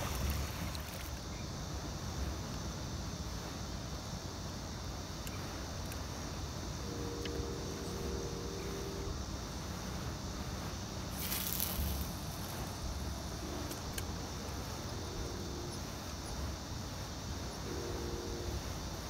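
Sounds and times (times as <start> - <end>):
steady low rumble: 0.0 - 19.0
faint tick: 5.2 - 6.0, 7.2 - 7.4
fishing line hissing off reel: 11.0 - 16.9.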